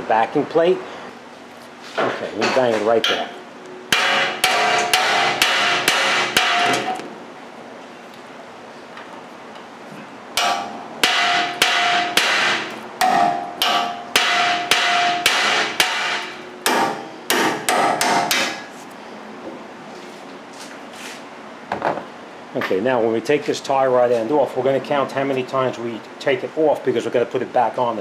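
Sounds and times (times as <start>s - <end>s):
hammer striking steel: 3.9s - 7.0s, 10.4s - 18.7s.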